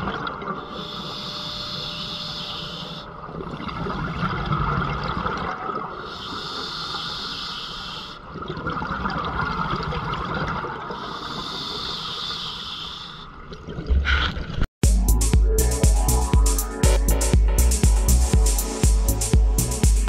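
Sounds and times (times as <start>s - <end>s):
regulator inhalation hiss: 0.7s - 3.1s, 6.0s - 8.2s, 11.0s - 13.3s
exhaled air bubbling: 2.9s - 7.2s, 8.0s - 12.4s.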